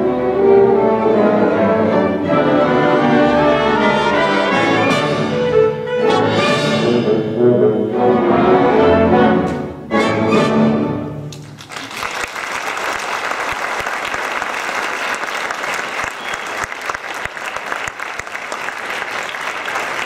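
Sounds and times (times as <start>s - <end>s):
audience applauding: 11.3s - 20.0s.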